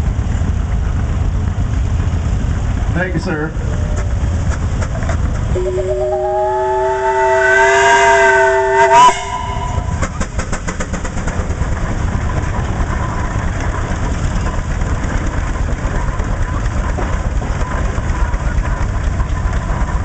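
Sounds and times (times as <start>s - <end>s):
steam engine exhaust beat: 0.0s - 20.0s
steam whistle blowing: 5.6s - 10.0s.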